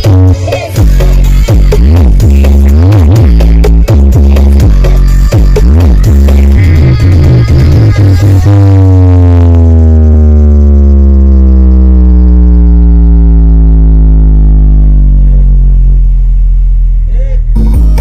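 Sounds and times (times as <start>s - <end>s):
deep bass drone from speakers: 0.0s - 18.0s.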